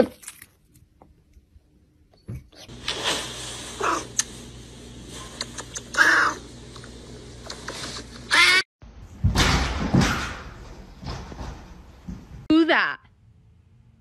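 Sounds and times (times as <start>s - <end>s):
cat screaming: 6.0s - 6.4s, 8.3s - 8.6s.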